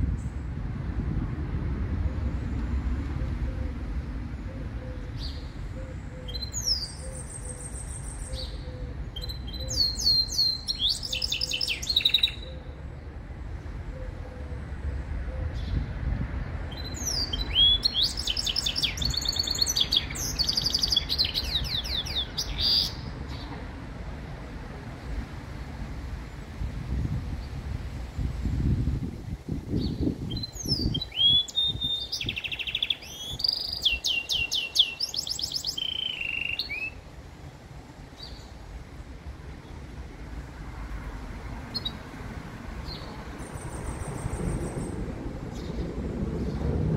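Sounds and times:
bird singing trilled notes: 0:04.9 - 0:12.8, 0:16.7 - 0:23.1, 0:29.8 - 0:37.0.

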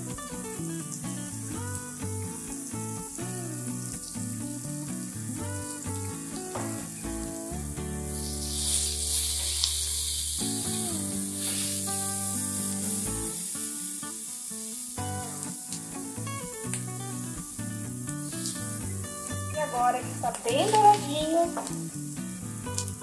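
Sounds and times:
background music: 0:00.0 - 0:23.0
sausage and onion sizzling: 0:00.0 - 0:23.0.

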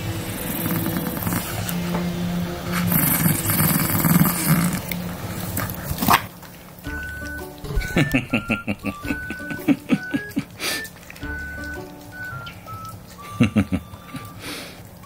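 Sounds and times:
dog growling: 0:00.3 - 0:01.8, 0:02.6 - 0:06.4.

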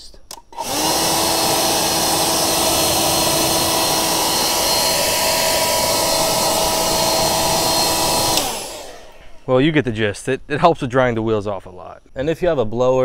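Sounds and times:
electric motor whine: 0:00.6 - 0:09.5
leaf blower air rush: 0:00.6 - 0:09.6.

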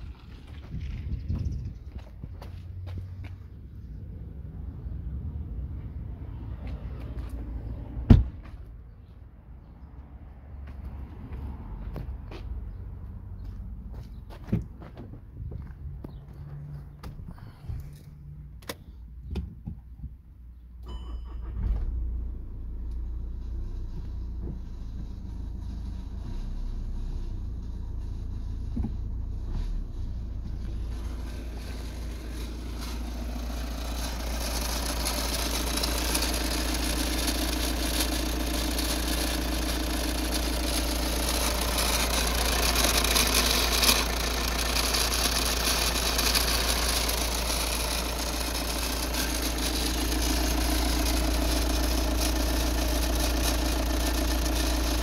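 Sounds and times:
diesel engine idling: 0:21.3 - 0:55.0.

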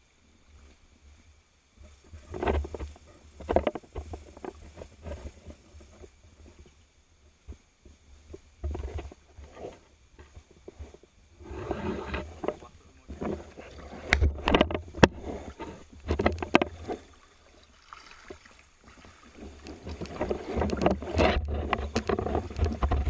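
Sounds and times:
water sloshing: 0:11.5 - 0:23.0.

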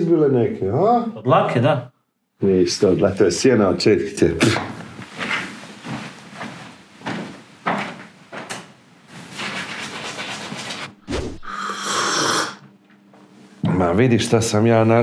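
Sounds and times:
slurp of coffee: 0:11.1 - 0:12.6.

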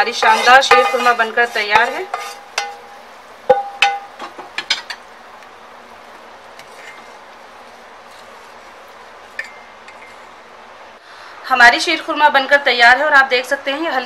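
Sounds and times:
spoon stirring thick liquid: 0:00.0 - 0:03.2, 0:06.0 - 0:10.2
metal spoon clinking on pot: 0:00.1 - 0:05.0, 0:09.4 - 0:10.2.

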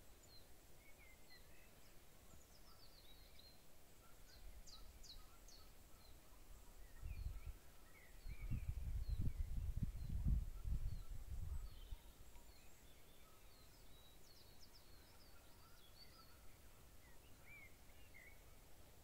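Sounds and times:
small birds chirping: 0:00.0 - 0:19.0
wind rumble on microphone: 0:06.8 - 0:12.1
downward-sweeping bird calls: 0:09.5 - 0:18.8.

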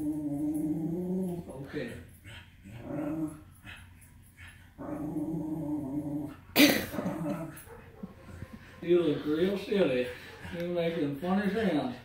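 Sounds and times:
dog grumbling moans: 0:00.0 - 0:08.7.

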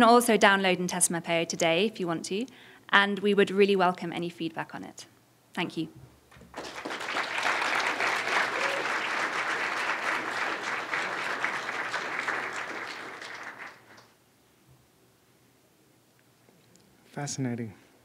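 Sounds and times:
audience applauding: 0:06.3 - 0:14.1.

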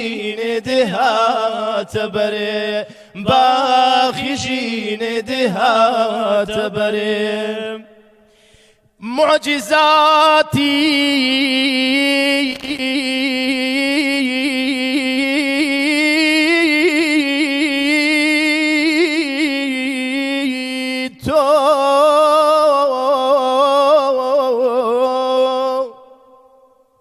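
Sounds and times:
man singing unaccompanied: 0:00.0 - 0:08.0, 0:09.0 - 0:26.7
quick breath: 0:02.8 - 0:03.2, 0:08.0 - 0:09.0.

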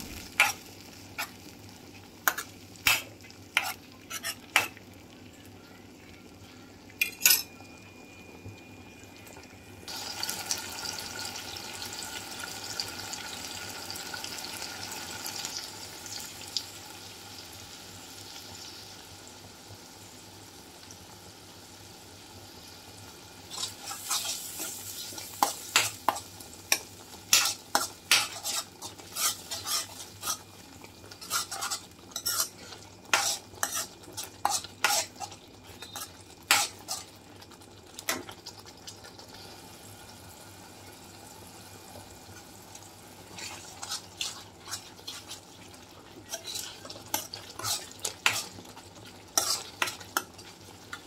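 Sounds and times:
frying sizzle: 0:00.0 - 0:51.0
metal spoon scraping frying pan: 0:00.1 - 0:00.6, 0:02.2 - 0:04.8, 0:23.5 - 0:37.2, 0:43.3 - 0:45.4, 0:46.2 - 0:50.5.

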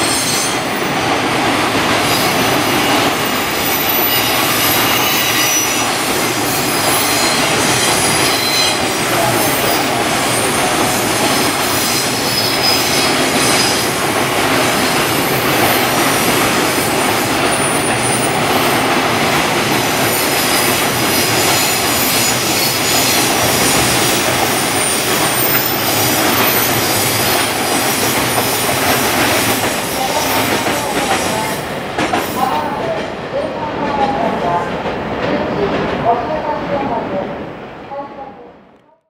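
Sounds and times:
train wheels rumbling on rails: 0:00.0 - 0:37.8
high wheel squeal: 0:02.1 - 0:13.8, 0:24.7 - 0:28.6.

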